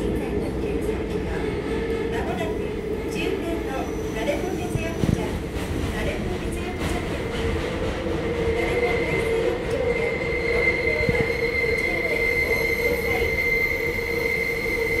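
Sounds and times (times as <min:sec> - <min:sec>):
subway train rumble: 0:00.0 - 0:15.0
high-pitched wheel squeal: 0:09.8 - 0:15.0.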